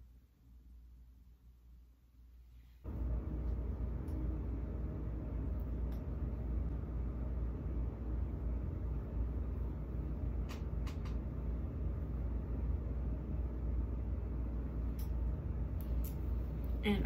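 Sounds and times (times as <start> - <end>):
air conditioner humming: 0.0 - 17.0.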